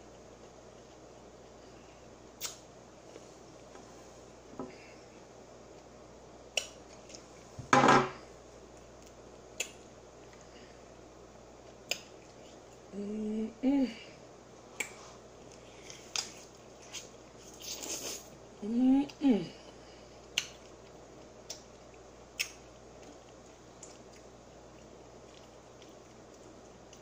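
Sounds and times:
mouth smacks: 2.4 - 2.6
person humming: 12.9 - 14.2, 18.6 - 19.7.

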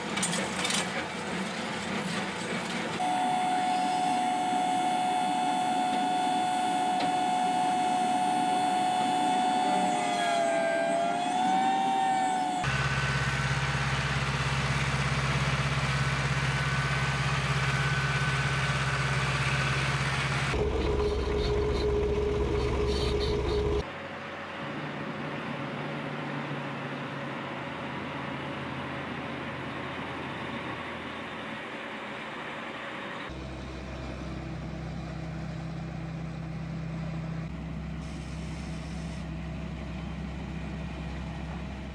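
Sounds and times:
truck engine: 0.0 - 41.9
high machinery whine: 1.5 - 25.6
tractor engine hum: 12.6 - 41.9.

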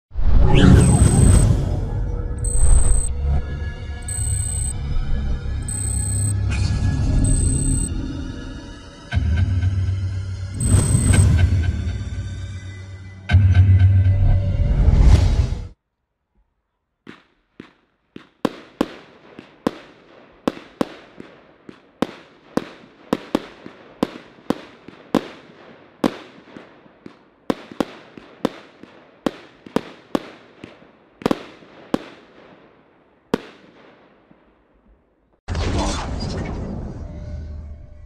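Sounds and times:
fireworks cake firing bangs: 17.0 - 32.7, 33.3 - 34.4.

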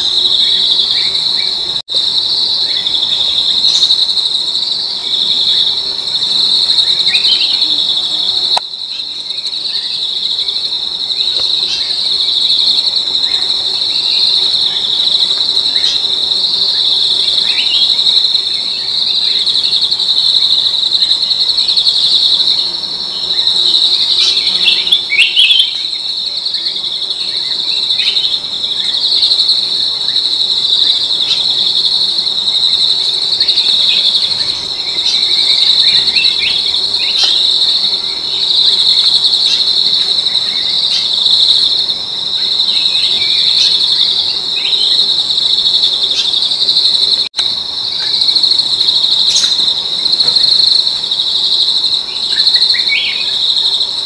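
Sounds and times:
high-pitched insect drone: 0.0 - 54.0.

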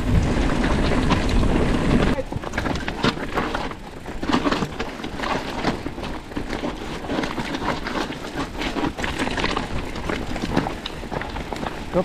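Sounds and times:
mountain bike rattling over rocks: 0.0 - 12.0.

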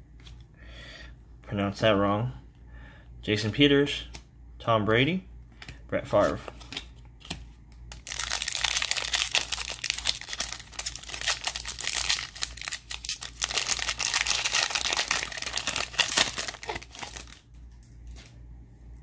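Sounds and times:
foil wrapper crinkling and tearing: 7.9 - 17.5.

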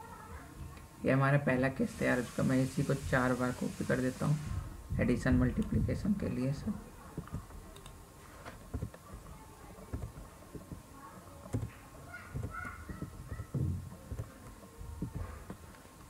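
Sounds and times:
computer keyboard clicks: 7.2 - 8.0, 11.4 - 11.8.

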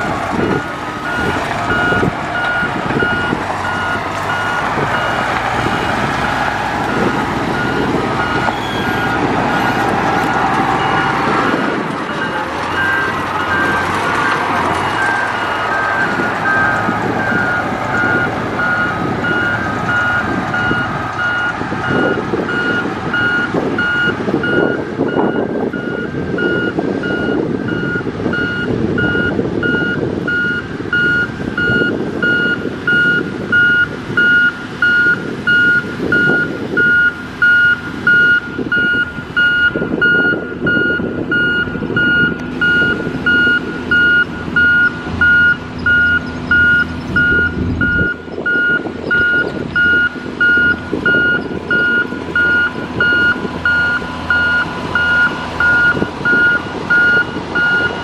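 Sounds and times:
reversing alarm beeping: 0.0 - 6.1, 6.9 - 58.0
diesel engine running: 0.0 - 58.0.

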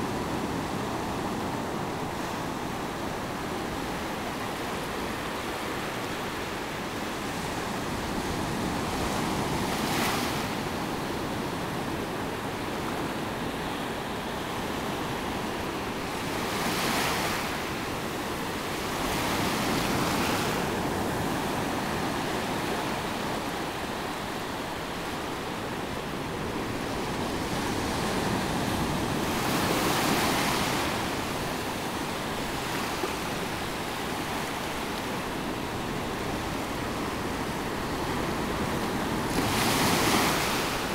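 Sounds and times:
small waves washing on sand: 24.7 - 40.9.

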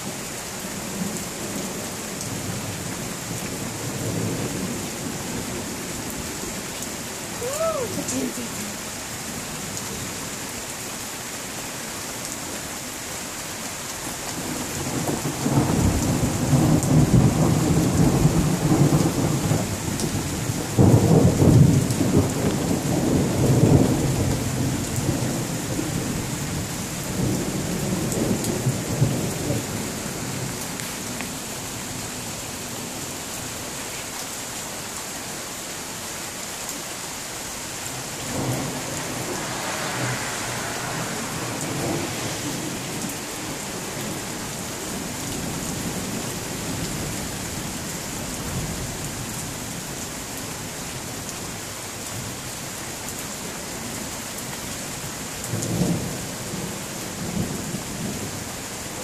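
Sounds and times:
steady rain: 0.0 - 59.0
rolling thunder: 14.4 - 30.6, 37.9 - 47.2.

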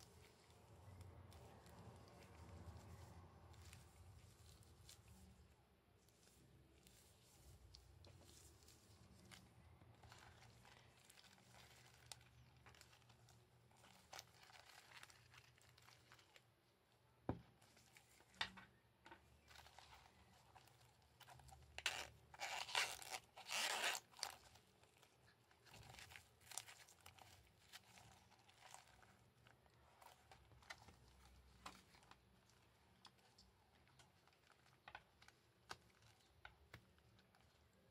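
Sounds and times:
leather wallet rustling: 17.4 - 37.9
metal zip pulled open: 21.8 - 24.3.

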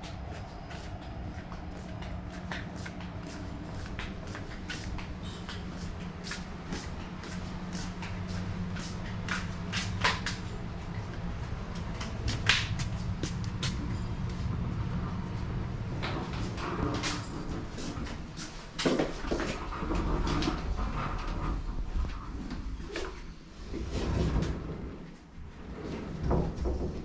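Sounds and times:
footsteps on pavement: 0.0 - 14.4
low steady hum: 0.0 - 27.0.

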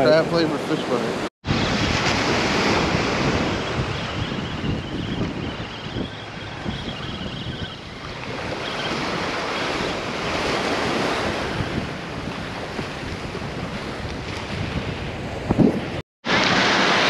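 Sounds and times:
small waves breaking: 0.8 - 4.2, 16.3 - 17.0
wind buffeting microphone: 1.4 - 16.6.

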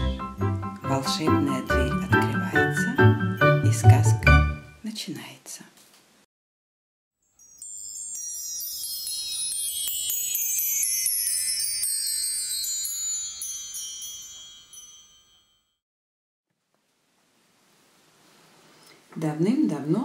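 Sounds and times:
chimes cascading: 7.2 - 15.8.

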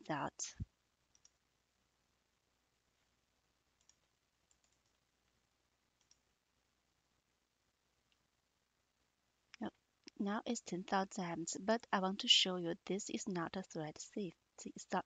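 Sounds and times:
computer mouse clicks: 1.1 - 1.4, 3.8 - 5.0, 6.0 - 6.2.

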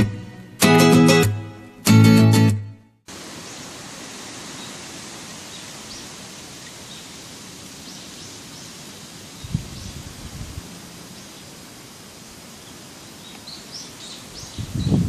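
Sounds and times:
steady background hiss: 3.1 - 15.0.

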